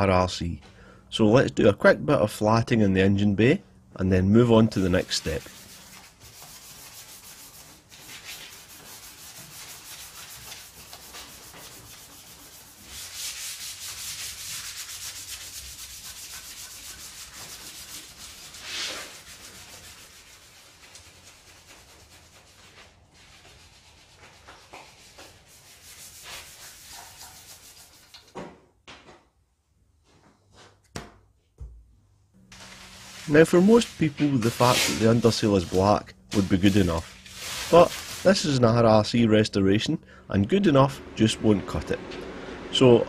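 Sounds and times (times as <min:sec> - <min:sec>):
hand sanding metal: 0:04.7 - 0:28.2, 0:32.5 - 0:38.6.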